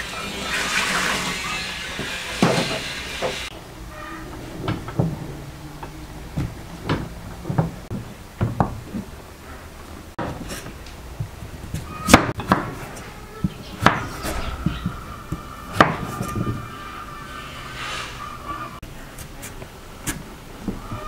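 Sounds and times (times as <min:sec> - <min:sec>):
tap water running into sink: 0:00.0 - 0:03.5.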